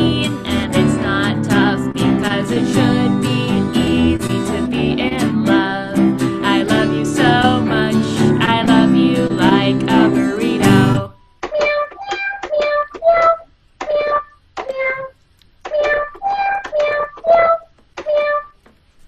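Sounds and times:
women singing pop song: 0.0s - 11.2s
toy keyboard notes: 11.4s - 18.6s.

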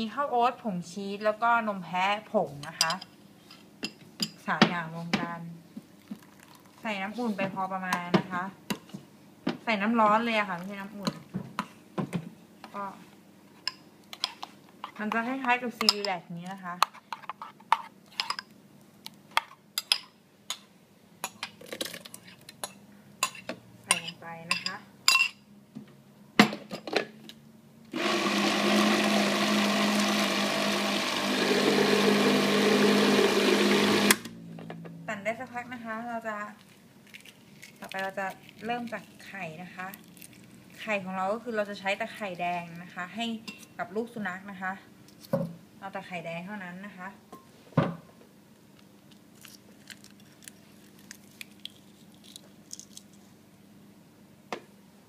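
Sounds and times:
blender running: 27.9s - 34.4s.

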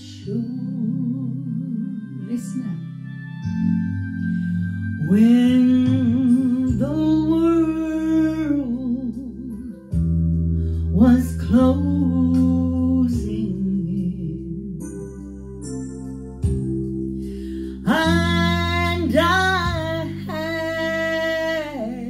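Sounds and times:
woman singing with vibrato: 0.0s - 2.9s, 5.0s - 9.7s, 11.0s - 14.7s, 17.8s - 22.0s
backing music: 1.9s - 22.0s.

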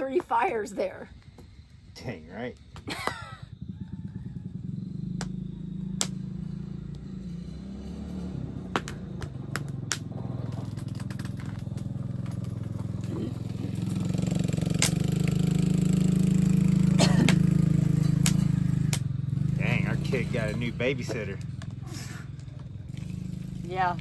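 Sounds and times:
small engine running: 1.1s - 24.0s.

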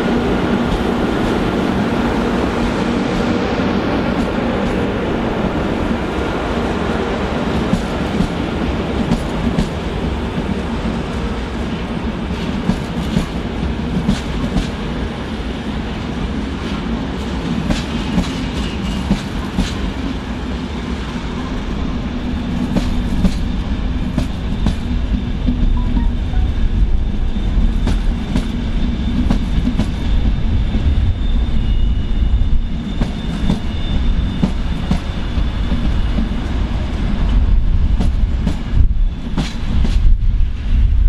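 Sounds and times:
train rumbling: 0.0s - 41.0s.

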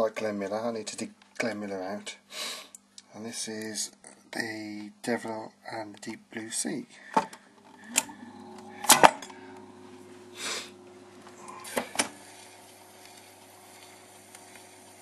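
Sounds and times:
faint hum: 6.9s - 15.0s
record and tonearm clicks and clunks: 7.2s - 9.7s, 11.3s - 14.9s.

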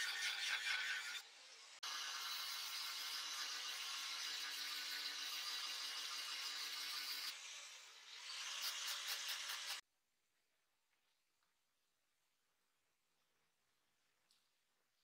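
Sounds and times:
angle grinder grinding steel: 0.0s - 9.8s.

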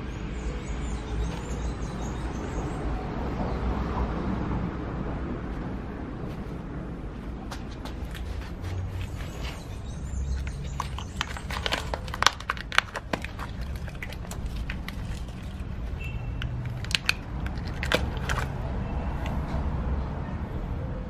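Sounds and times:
gloved hand handling cactus: 7.2s - 19.4s.

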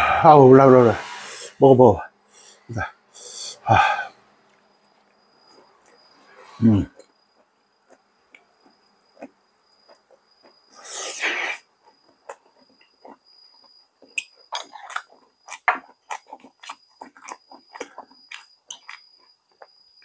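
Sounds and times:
loud slurp or drawn breath: 10.7s - 11.7s.

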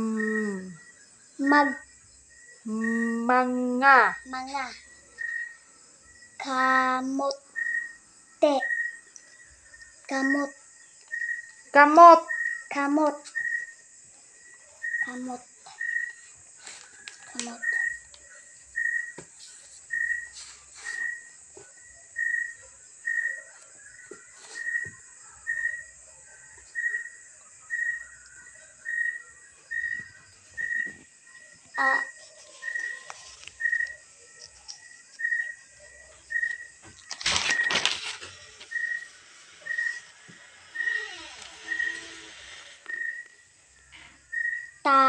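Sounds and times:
loud rustle: 37.0s - 43.0s.

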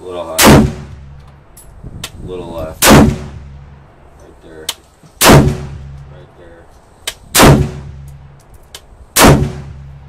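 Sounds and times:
gunshots with ringing: 0.4s - 0.9s, 2.8s - 3.4s, 5.2s - 5.8s, 7.3s - 7.9s, 9.2s - 9.8s.

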